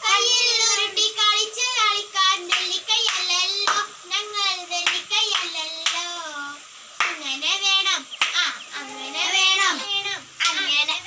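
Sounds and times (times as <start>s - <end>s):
girl singing: 0.0s - 11.0s
hand claps: 2.5s - 3.9s, 4.8s - 6.3s, 7.0s - 7.3s, 8.2s - 8.5s, 10.4s - 10.7s.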